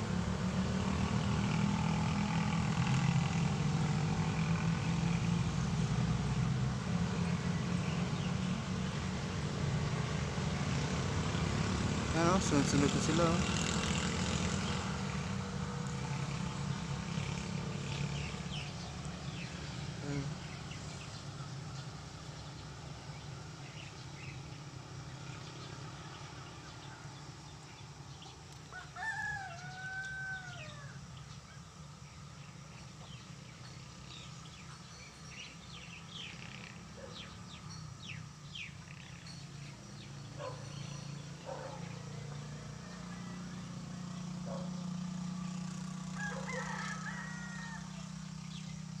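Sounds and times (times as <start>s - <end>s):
rooster crowing: 28.7s - 31.1s, 42.1s - 44.1s, 46.1s - 48.3s.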